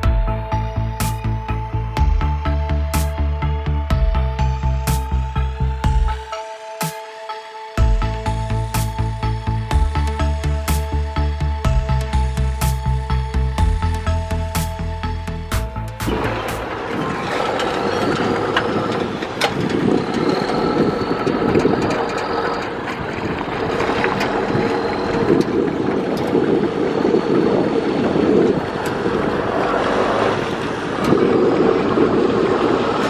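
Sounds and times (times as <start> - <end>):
diesel tractor engine running: 7.8 - 33.0
water churning: 15.7 - 33.0.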